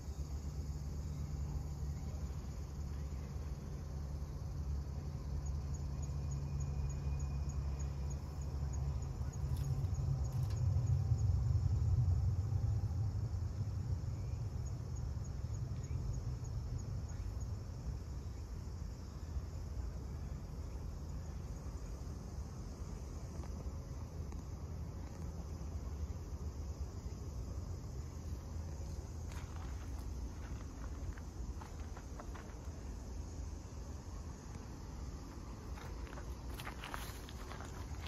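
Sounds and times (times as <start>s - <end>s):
faint insect chirping: 0.0s - 38.0s
low rumble: 8.6s - 18.4s.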